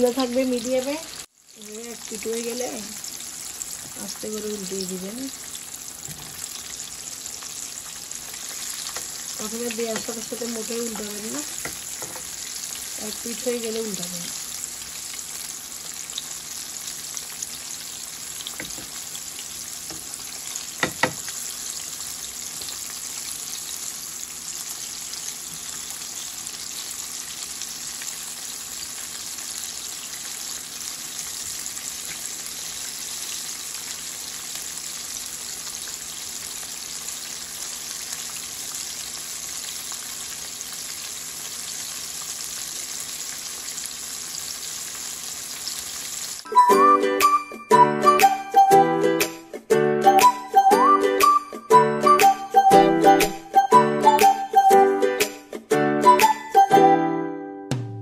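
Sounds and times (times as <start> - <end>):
food sizzling in hot oil: 0.0 - 47.4
tongs knocking against pan: 20.8 - 21.2.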